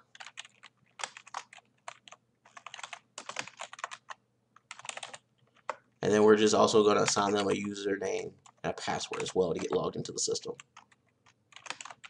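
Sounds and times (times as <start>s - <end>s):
typing on computer keyboard: 0.1s - 5.8s, 8.4s - 10.0s, 10.6s - 12.0s.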